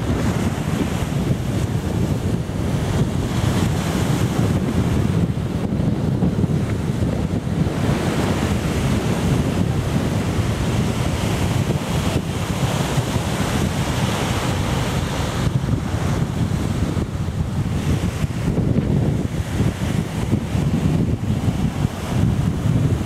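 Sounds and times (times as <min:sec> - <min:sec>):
small waves breaking on shore: 0:00.0 - 0:23.0
wind buffeting microphone: 0:00.0 - 0:23.0.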